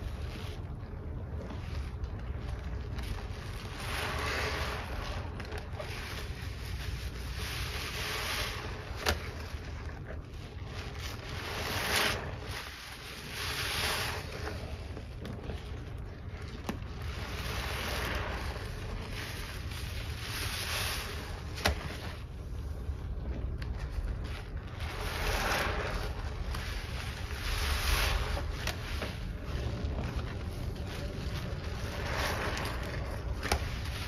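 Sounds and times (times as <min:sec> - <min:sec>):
sponge squelching in suds: 0:00.0 - 0:34.0.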